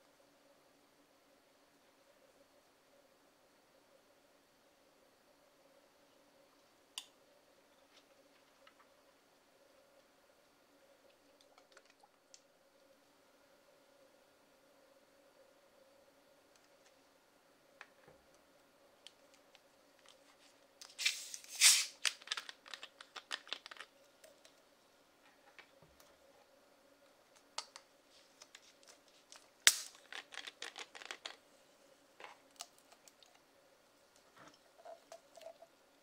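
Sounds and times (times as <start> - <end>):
soda bottle cap hissing open: 20.9 - 22.4, 29.7 - 30.8.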